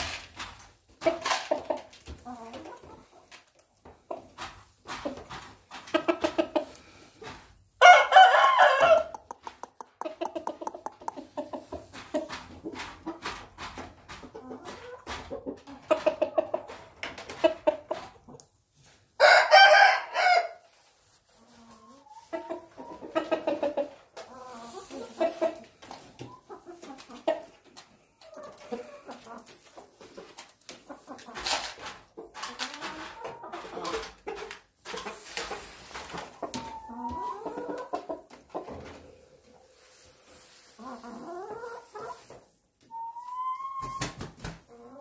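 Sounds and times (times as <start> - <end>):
chickens clucking: 0.0 - 19.9, 20.7 - 45.0
rooster crowing: 7.8 - 9.2, 19.2 - 20.6.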